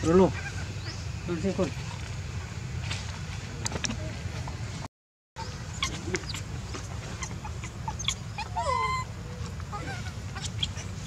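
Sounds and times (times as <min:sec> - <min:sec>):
baby monkey high call: 0:05.4 - 0:09.1, 0:09.7 - 0:11.0.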